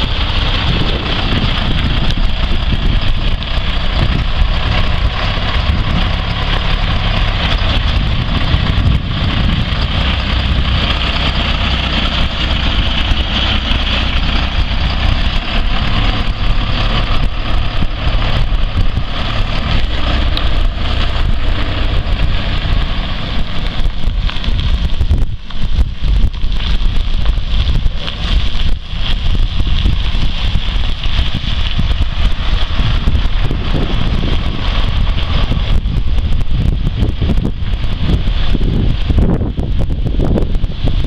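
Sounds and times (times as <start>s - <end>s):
truck engine driving past: 0.0s - 25.0s, 29.8s - 36.8s
wind buffeting microphone: 0.0s - 41.0s.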